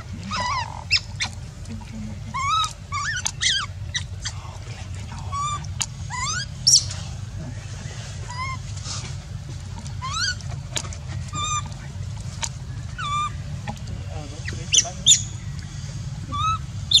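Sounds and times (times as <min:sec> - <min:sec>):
baby monkey crying: 0:00.0 - 0:01.4, 0:02.2 - 0:04.4, 0:05.2 - 0:07.0, 0:08.2 - 0:08.8, 0:09.9 - 0:11.8, 0:12.8 - 0:15.4, 0:16.2 - 0:17.0
steady low hum: 0:00.0 - 0:17.0.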